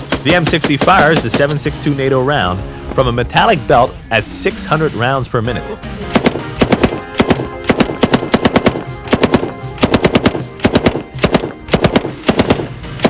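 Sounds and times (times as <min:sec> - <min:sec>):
machine gun firing bursts: 0:00.0 - 0:01.6, 0:06.1 - 0:13.0.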